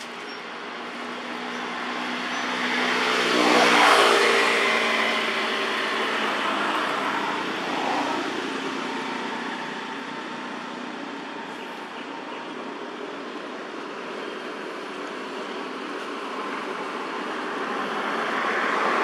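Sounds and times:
motor vehicle passing by: 0:00.8 - 0:10.7.

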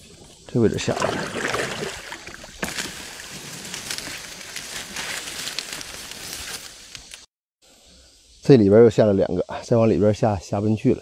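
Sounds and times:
water sloshing: 0:00.0 - 0:03.9
reeds scraping along kayak: 0:00.6 - 0:07.0.

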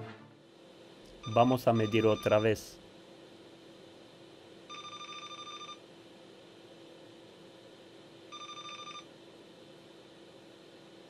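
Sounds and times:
multimeter continuity beeps: 0:01.2 - 0:02.7, 0:04.7 - 0:05.8, 0:08.3 - 0:09.1.

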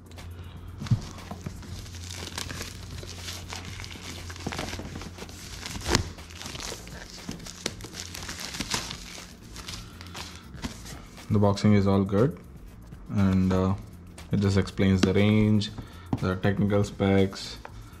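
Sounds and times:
plastic shrink-wrap crinkling: 0:00.8 - 0:11.0.

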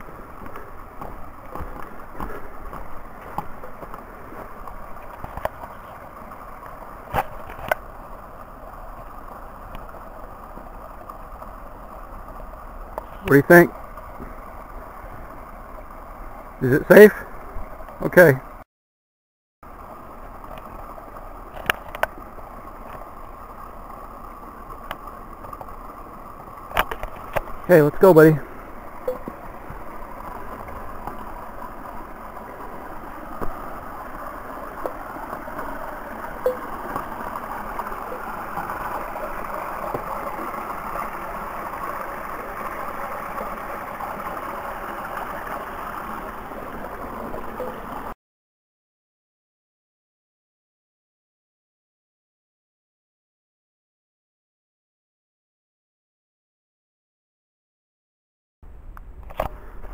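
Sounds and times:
brook water rushing: 0:00.0 - 0:18.6, 0:19.6 - 0:48.2.

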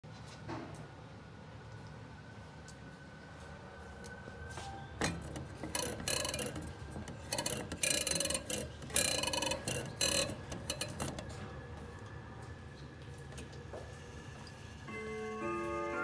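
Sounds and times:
fingers scraping metal clock dial: 0:05.1 - 0:11.2.

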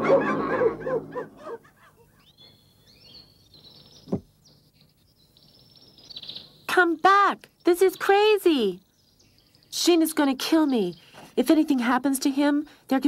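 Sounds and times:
faint bird chirps: 0:02.1 - 0:11.8.

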